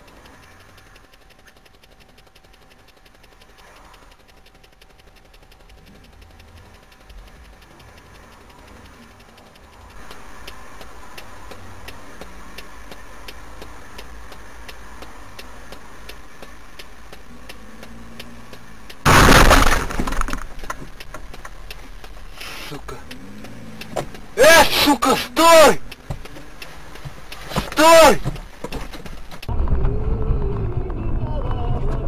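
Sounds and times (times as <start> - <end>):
car road and engine noise: 0.0 - 32.0
loud car collision impact: 19.1 - 20.5.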